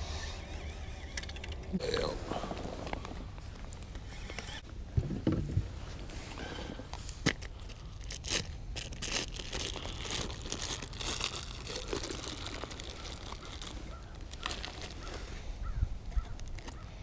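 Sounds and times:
plastic bottle crinkling: 0:07.2 - 0:15.2, 0:16.2 - 0:16.8.

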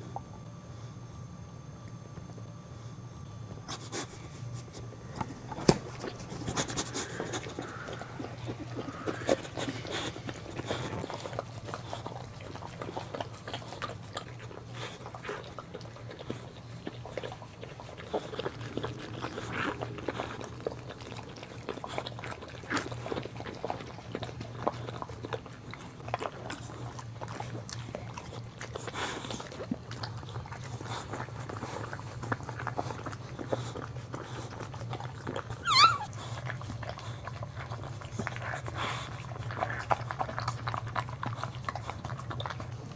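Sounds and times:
dog licking puppy: 0:03.5 - 0:42.9
puppy squealing: 0:35.5 - 0:36.2.

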